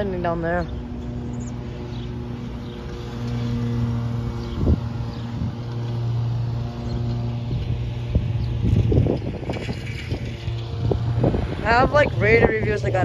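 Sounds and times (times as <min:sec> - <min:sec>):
lawn mower engine running: 0:00.0 - 0:13.0
wind on microphone: 0:04.4 - 0:05.7, 0:06.9 - 0:13.0.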